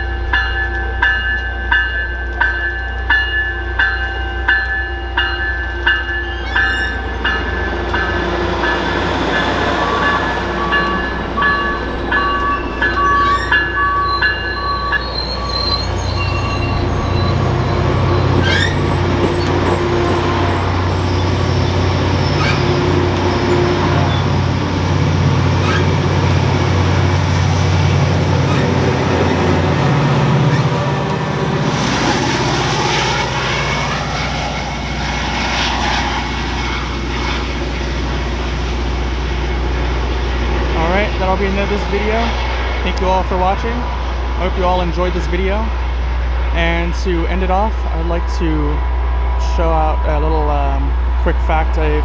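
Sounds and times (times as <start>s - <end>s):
bell dinging: 0.0s - 15.6s
train rumble: 0.0s - 52.0s.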